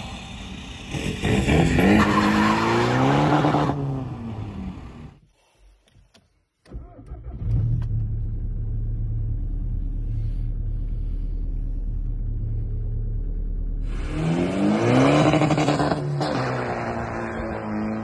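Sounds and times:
car accelerating hard: 13.8 - 18.0.

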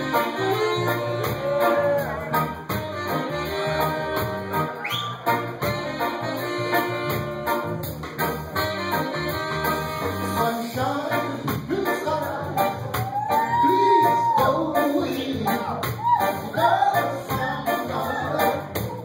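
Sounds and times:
person singing: 0.0 - 2.6, 10.0 - 19.0
live band playing: 0.0 - 19.0.

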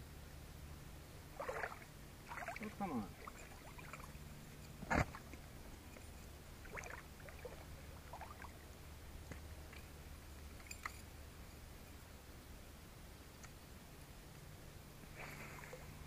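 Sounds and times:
water sloshing around wading legs: 1.3 - 5.9, 6.6 - 8.6, 15.1 - 16.0
faint short splashes: 1.4 - 4.2, 15.1 - 16.0.

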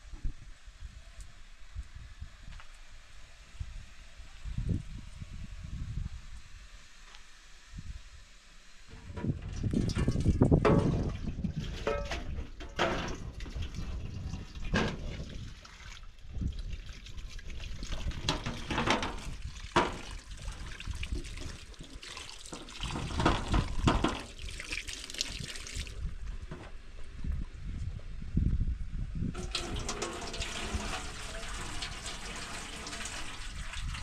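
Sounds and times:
tap water splashing into sink: 18.0 - 25.9, 29.4 - 34.0.

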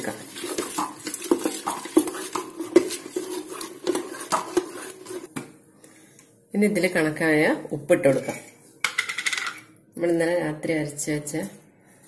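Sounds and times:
batter stirred in steel bowl: 0.0 - 5.3.

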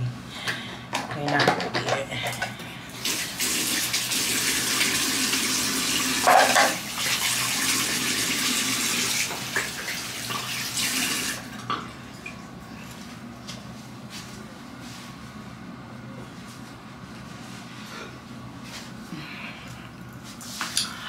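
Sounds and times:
tap water running into sink: 3.0 - 11.5.

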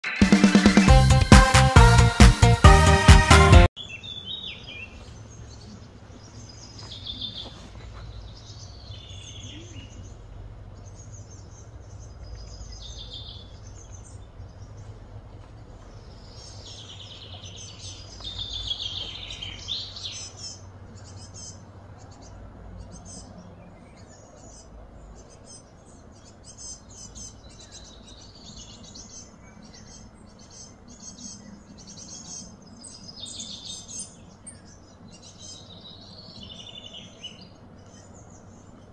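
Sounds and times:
birds chirping and whistling: 10.8 - 15.0, 15.9 - 38.9.

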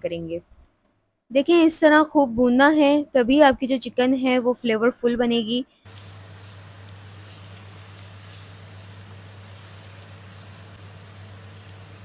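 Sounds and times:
chicken sizzling in hot oil: 5.9 - 12.0.

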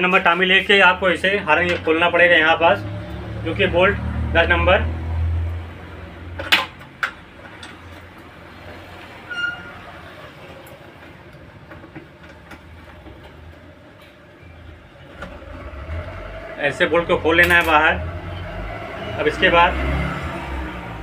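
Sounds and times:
short squeak: 9.2 - 10.0.

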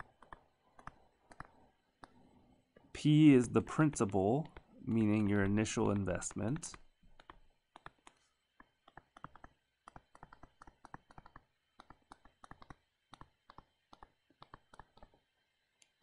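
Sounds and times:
stylus tapping on tablet screen: 0.0 - 2.2, 5.4 - 15.2.

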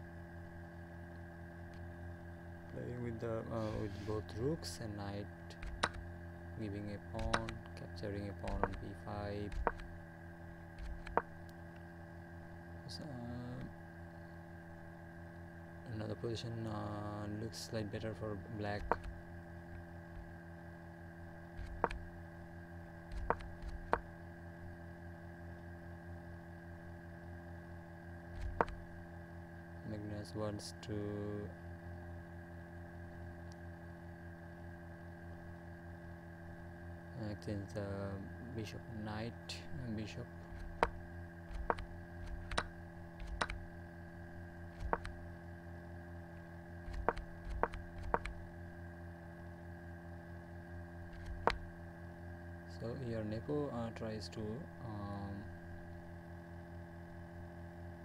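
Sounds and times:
steady hum: 0.0 - 58.0
computer mouse clicks: 5.5 - 6.0, 7.2 - 7.6, 8.4 - 8.9, 9.5 - 9.9, 10.8 - 11.3, 18.8 - 19.2, 21.6 - 22.0, 23.1 - 24.0, 28.4 - 28.8, 40.5 - 43.6, 44.8 - 45.2, 46.9 - 48.4, 51.1 - 51.6.

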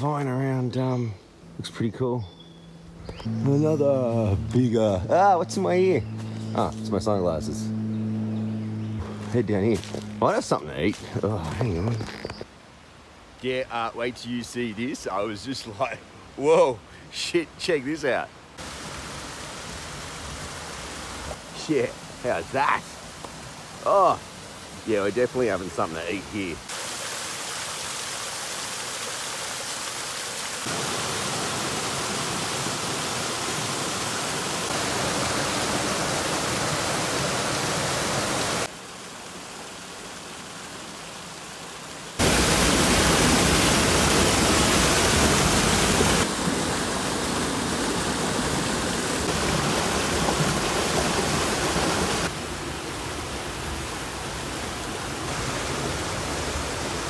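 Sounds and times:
waterfall rushing over rocks: 18.6 - 57.0.

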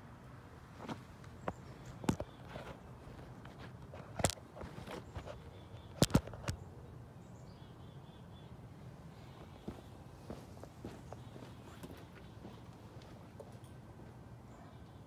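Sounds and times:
faint bird chirps: 14.5 - 15.0.

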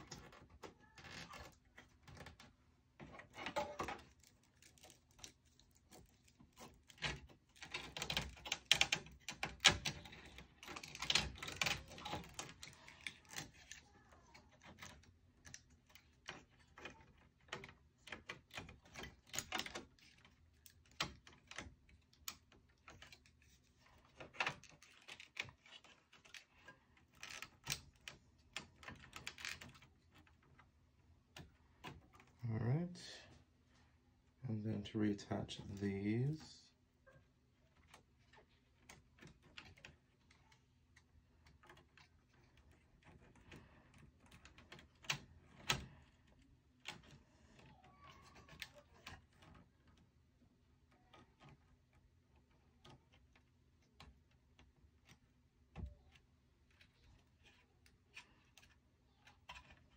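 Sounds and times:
server parts clicking and rattling: 0.0 - 32.9.

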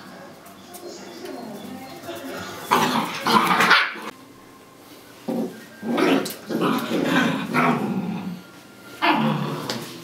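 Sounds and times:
puppy growling: 2.6 - 4.1, 5.2 - 10.0.

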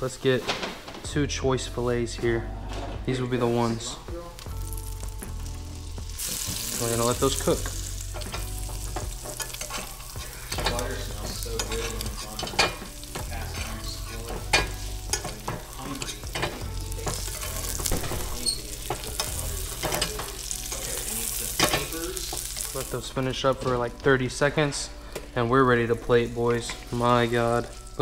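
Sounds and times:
fish sizzling in a skillet: 4.2 - 28.0
metal spoon scraping a pan: 6.2 - 22.8.

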